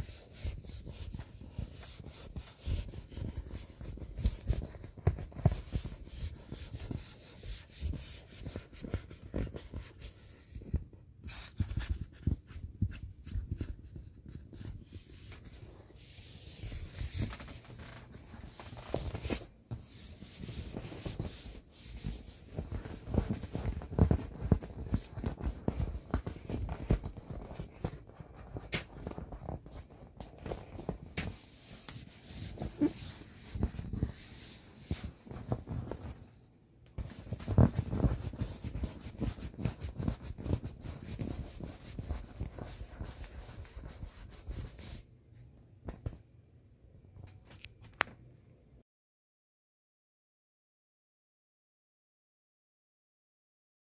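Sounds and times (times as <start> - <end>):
hand rubbing inflated vinyl: 0.0 - 36.4, 37.0 - 45.1.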